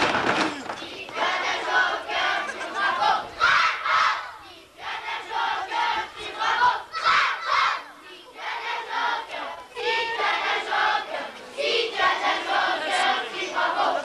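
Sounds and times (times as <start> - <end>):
children singing in shouted phrases: 0.4 - 14.0.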